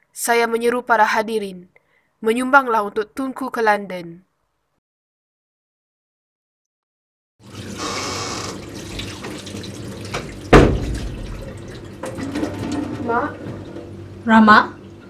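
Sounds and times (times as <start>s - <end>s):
tap running into a sink: 7.5s - 13.8s
loud knock: 10.5s - 11.4s.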